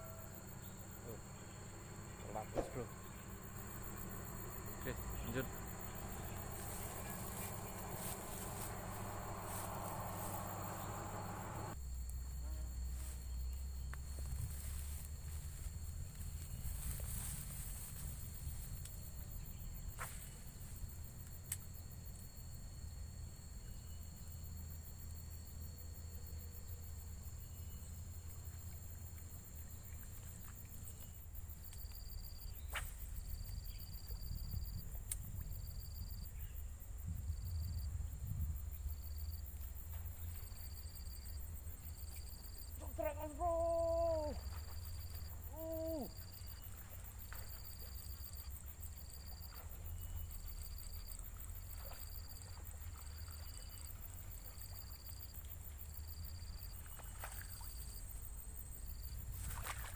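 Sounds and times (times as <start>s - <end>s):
low steady rumble: 0.0s - 25.3s, 33.0s - 42.8s
insect chirping: 0.0s - 59.9s.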